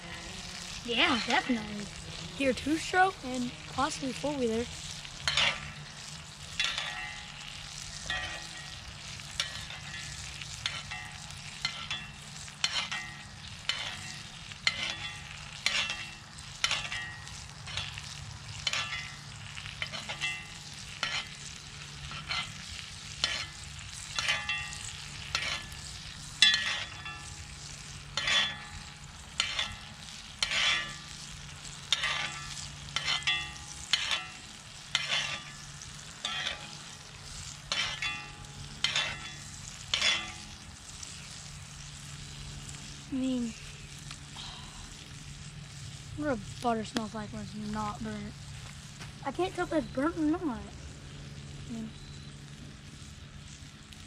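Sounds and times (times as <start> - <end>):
utensil scraping skillet: 0.0 - 42.9
butter frying: 0.0 - 54.0
low hum: 0.0 - 54.0.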